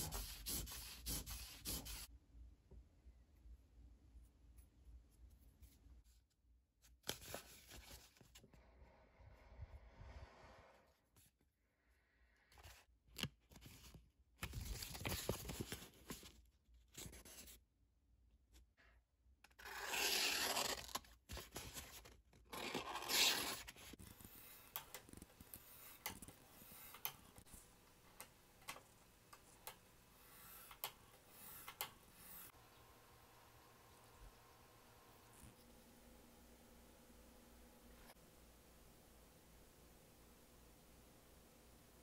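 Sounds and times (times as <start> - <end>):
razor blade slicing paper: 19.6 - 21.0.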